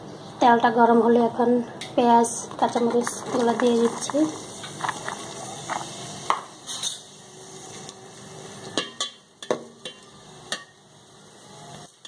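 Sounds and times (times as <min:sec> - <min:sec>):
onions sizzling in hot oil: 0:02.5 - 0:12.0.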